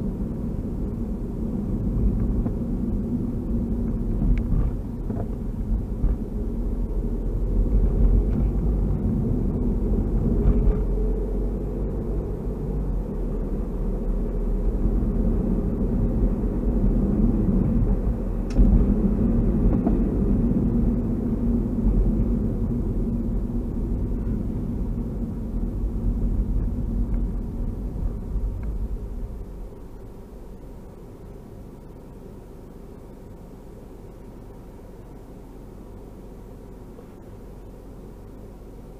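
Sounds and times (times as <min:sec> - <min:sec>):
car engine and tyre rumble: 0:00.0 - 0:38.9.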